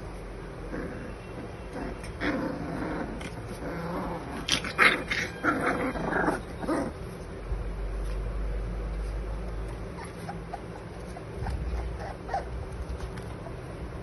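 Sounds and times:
puppies crying: 4.1 - 7.1, 9.8 - 13.6.

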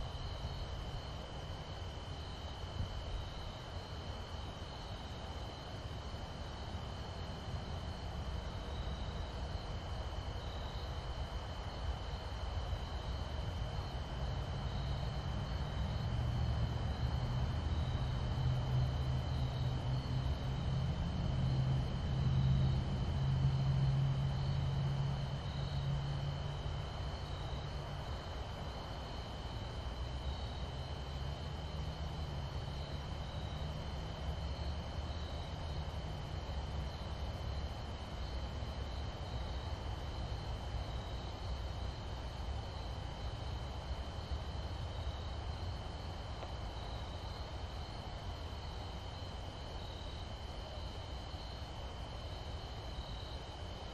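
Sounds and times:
crickets trilling: 0.0 - 53.9
distant engine drone: 13.4 - 42.6.

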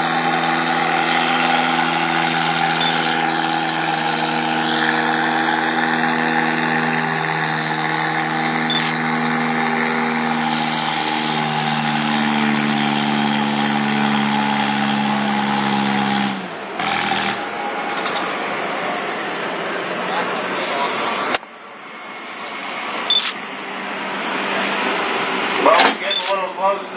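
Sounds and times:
tractor engine under load: 0.0 - 18.6.

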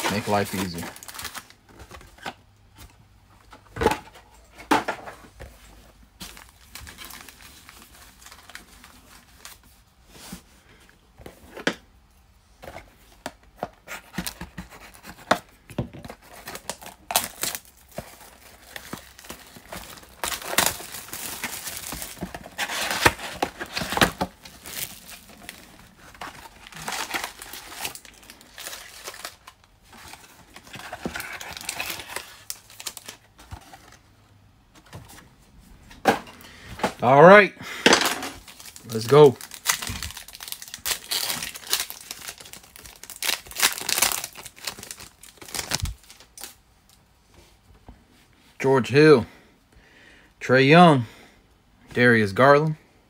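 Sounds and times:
plastic wrappers tearing and crinkling: 0.0 - 2.3, 6.3 - 9.7, 16.1 - 33.3, 38.1 - 47.0.

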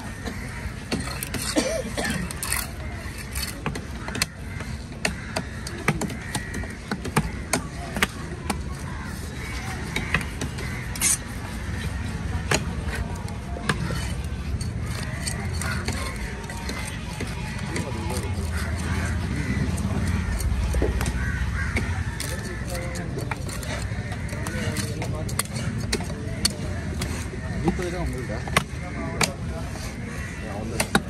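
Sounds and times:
market voices: 0.0 - 31.0
knife blades chopping on wood: 0.2 - 14.2.

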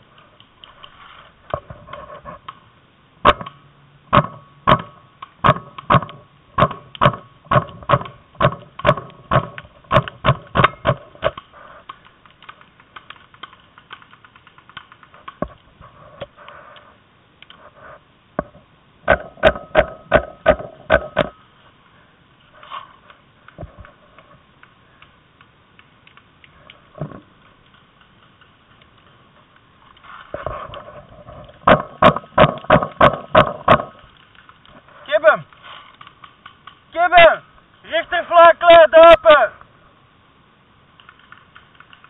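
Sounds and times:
paintball markers firing: 3.3 - 15.7, 31.6 - 37.1, 41.0 - 42.0.

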